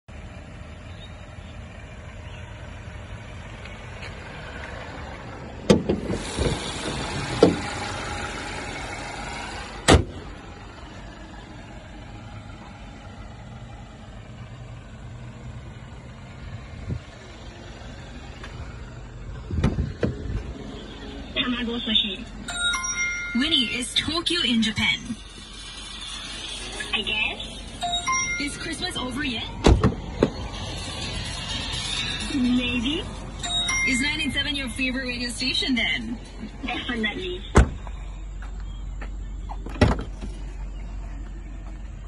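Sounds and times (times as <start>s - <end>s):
car engine idling: 0.0s - 42.0s
car door clunk: 5.6s - 7.7s, 9.8s - 10.2s, 19.5s - 20.5s, 29.6s - 30.4s, 37.5s - 37.9s, 39.5s - 40.4s.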